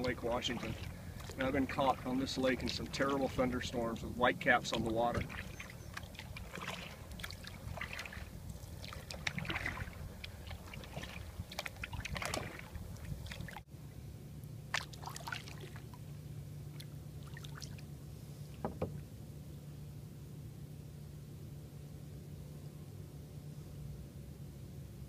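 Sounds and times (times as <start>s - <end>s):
paddle splashes and drips: 0.0s - 13.7s, 14.7s - 19.1s.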